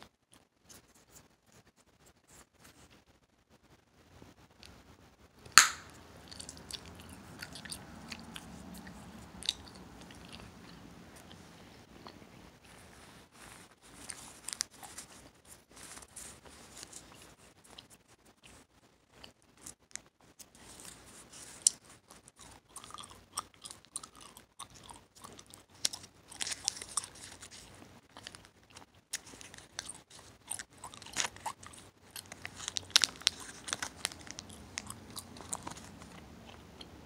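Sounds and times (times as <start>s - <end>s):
bubble gum cracking snaps: 5.5s - 6.6s
gum chewing and smacking: 5.5s - 37.0s.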